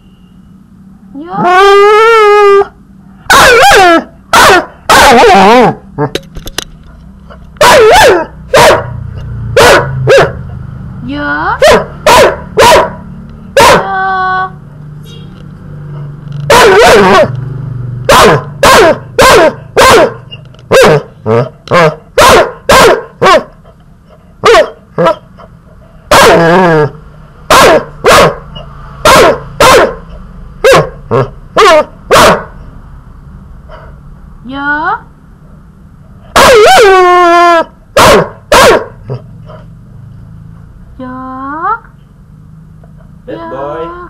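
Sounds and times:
puppy barking: 0:03.3 - 0:06.1, 0:07.6 - 0:09.0, 0:09.6 - 0:10.5, 0:11.6 - 0:13.0, 0:13.6 - 0:13.9, 0:16.5 - 0:17.4, 0:18.1 - 0:23.6, 0:24.4 - 0:25.4, 0:26.1 - 0:28.4, 0:29.0 - 0:32.6, 0:36.3 - 0:37.0, 0:37.6 - 0:39.2.

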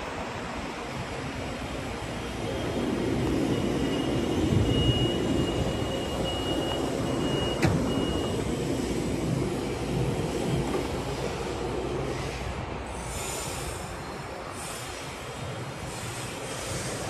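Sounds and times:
low rumble of electric train: 0:00.0 - 0:17.0
high-pitched warning tone: 0:02.4 - 0:08.7
train doors shutting thump: 0:06.8 - 0:08.5.

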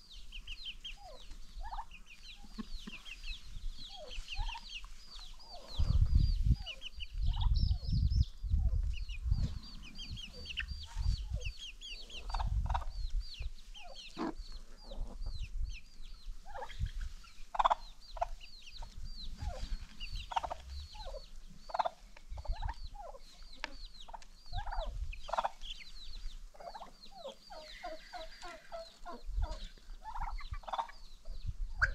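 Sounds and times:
chickens clucking: 0:00.0 - 0:31.9.

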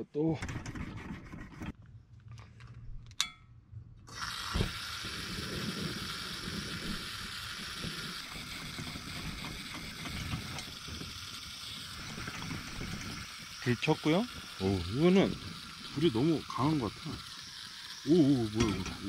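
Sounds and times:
metallic click: 0:03.1 - 0:03.4
stove burner hissing: 0:04.1 - 0:19.0
burner igniting thump: 0:04.4 - 0:07.0.

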